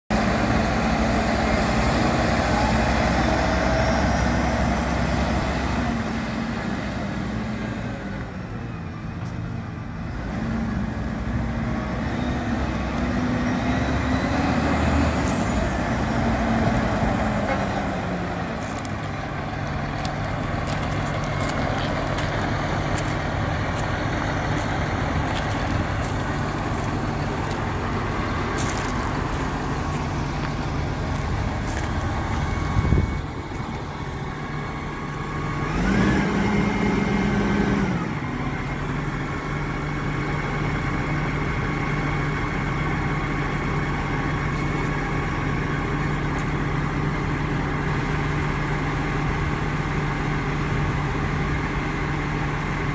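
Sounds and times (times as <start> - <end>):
diesel tractor engine idling: 0.1 - 52.9.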